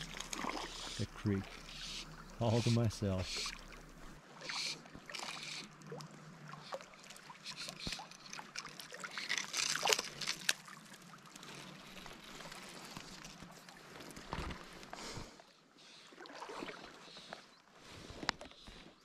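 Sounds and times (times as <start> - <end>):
creek water trickling: 0.0 - 19.0
light clicks and rustles: 6.7 - 15.0.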